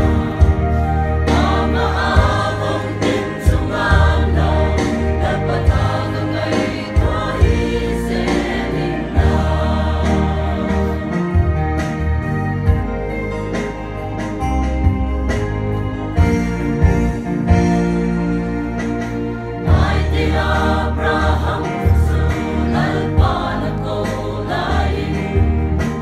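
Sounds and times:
mixed choir singing: 0.0 - 11.9, 19.6 - 26.0.

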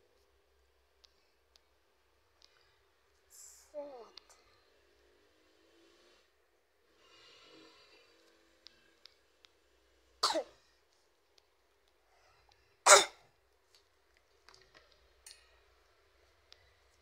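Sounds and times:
person coughing: 10.2 - 10.5, 12.9 - 13.2.

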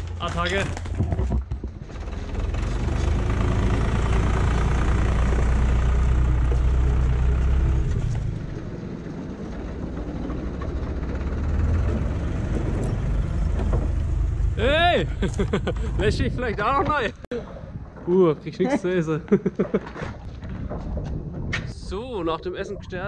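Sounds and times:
tractor engine running: 0.0 - 18.0.

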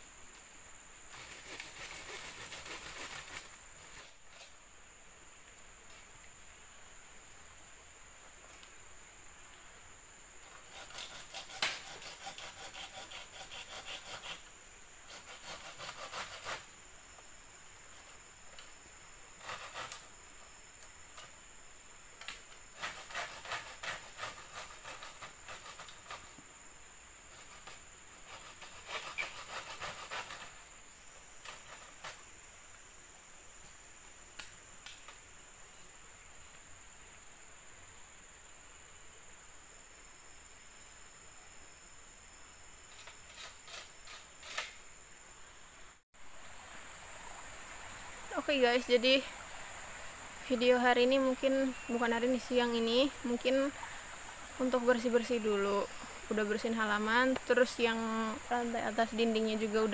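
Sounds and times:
scratchy rubbing on wood: 10.7 - 14.4, 28.3 - 30.6.

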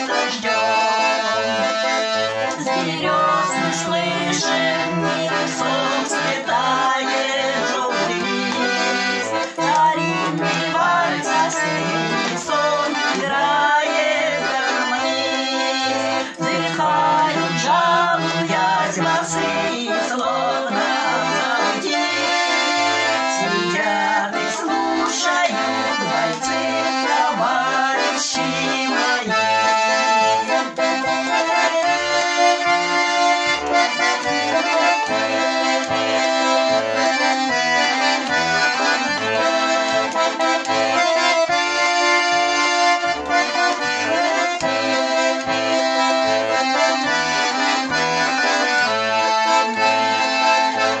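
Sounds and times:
women singing: 0.0 - 30.6, 43.4 - 45.5
button accordion waltz: 0.0 - 51.0.

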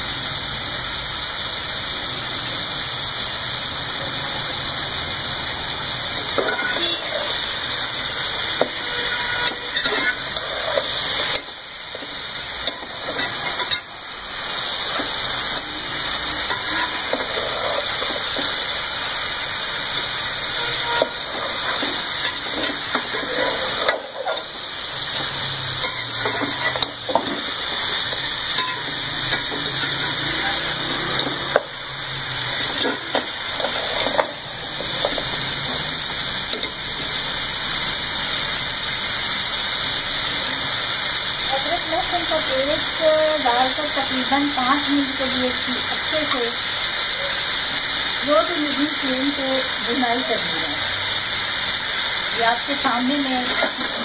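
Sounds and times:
meat sizzling in oil: 0.0 - 54.0
metal spatula scraping pot: 6.4 - 7.4, 8.6 - 11.5, 14.9 - 18.6, 20.5 - 24.6, 25.2 - 31.7.

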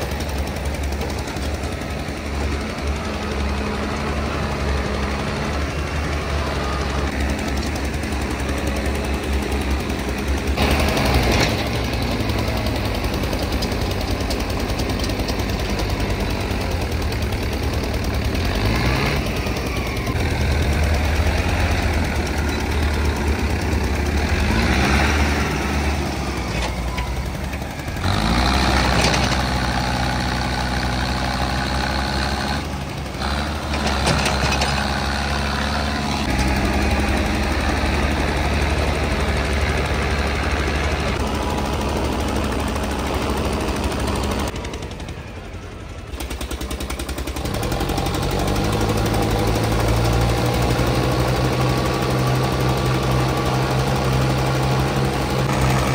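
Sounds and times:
tractor engines revving under load: 0.0 - 55.9.

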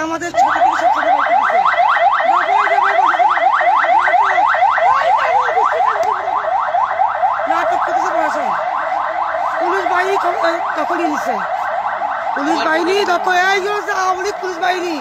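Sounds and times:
electronic siren yelping: 0.0 - 15.0.

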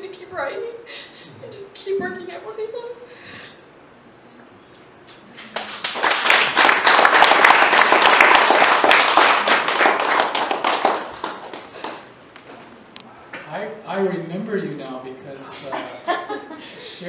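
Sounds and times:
audience applauding: 5.4 - 12.1.

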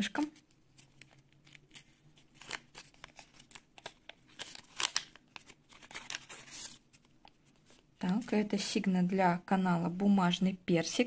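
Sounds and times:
paper crinkling and rustling: 0.2 - 7.9.

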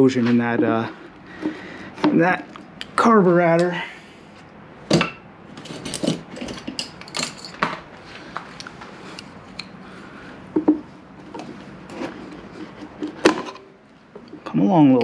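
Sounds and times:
metal hand tools clinking: 5.6 - 7.7.

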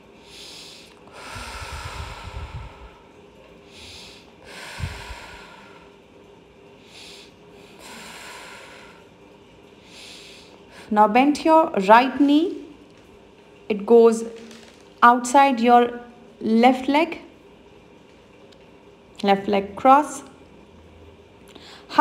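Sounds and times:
woman breathing through her nose: 0.2 - 6.0, 6.8 - 9.2, 9.8 - 10.9.

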